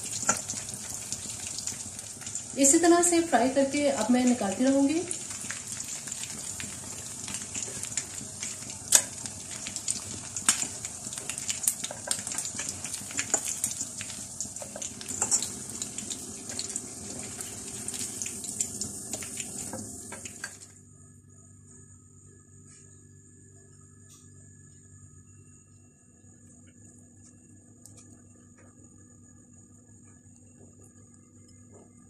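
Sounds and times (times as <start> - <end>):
chicken deep-frying in hot oil: 0.0 - 20.8.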